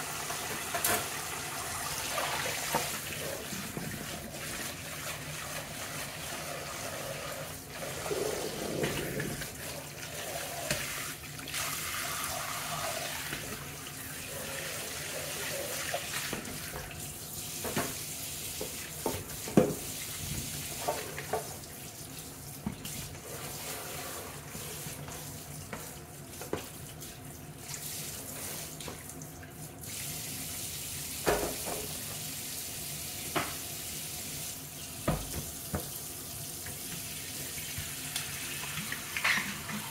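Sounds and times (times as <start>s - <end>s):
tap running into metal sink: 31.2s - 32.0s, 35.0s - 36.0s
knocks against sink: 35.0s - 35.9s.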